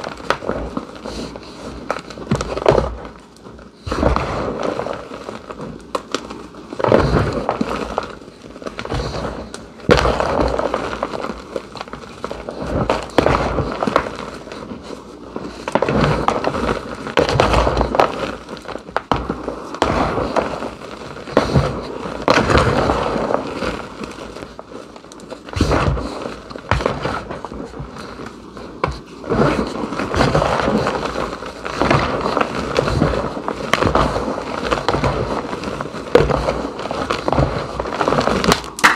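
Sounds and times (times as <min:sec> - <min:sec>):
chalk powder crunching: 0:00.0 - 0:38.9
sharp snaps: 0:38.5 - 0:38.9.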